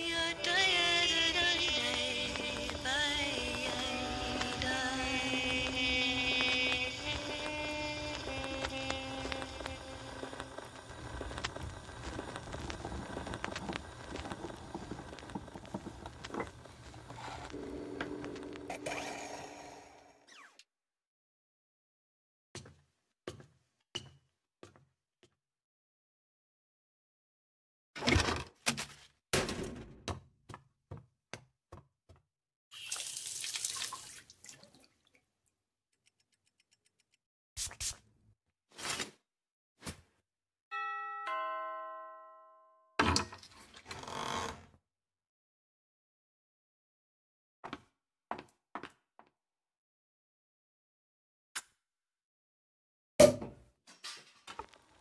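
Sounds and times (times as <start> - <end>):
record surface crackle: 1.3 - 18.7
perfume atomizer hissing puffs: 7.0 - 17.9.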